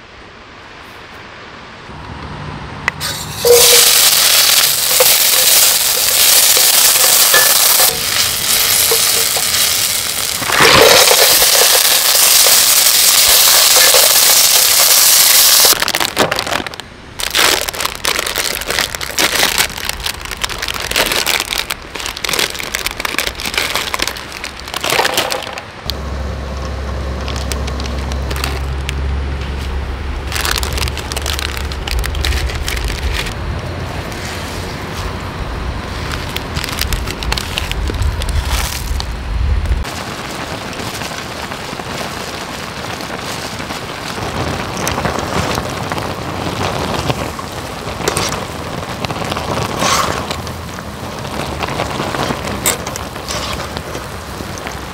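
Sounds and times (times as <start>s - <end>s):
onions sizzling in oil: 3.0s - 15.8s
plastic packets crinkling and tearing: 3.4s - 25.7s, 27.2s - 33.4s, 36.0s - 54.9s
steady low rumble: 25.5s - 54.9s.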